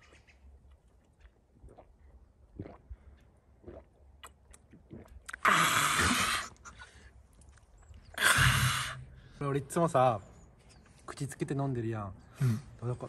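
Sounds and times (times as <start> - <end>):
man gulping from plastic bottle: 0.6 - 9.2.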